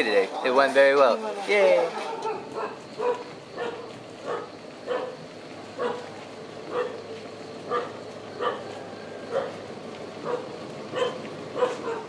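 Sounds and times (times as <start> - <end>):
dog barking: 2.0 - 5.2, 5.8 - 6.1, 6.7 - 7.0, 7.7 - 8.7, 9.3 - 9.6, 10.2 - 12.0.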